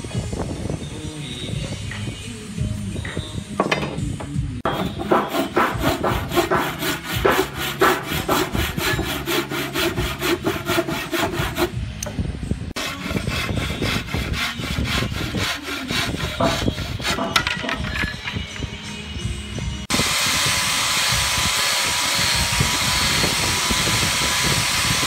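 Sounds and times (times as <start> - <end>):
bow saw cutting wood: 4.7 - 11.8, 12.8 - 17.4.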